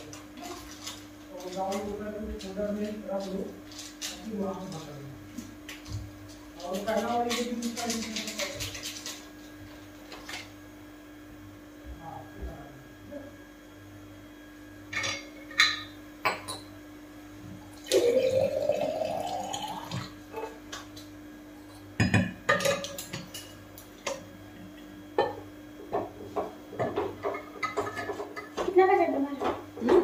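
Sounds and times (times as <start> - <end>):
utensils and dishes clattering: 6.6 - 9.3, 22.0 - 24.2, 26.8 - 28.7
liquid pouring into vessel: 17.8 - 20.1.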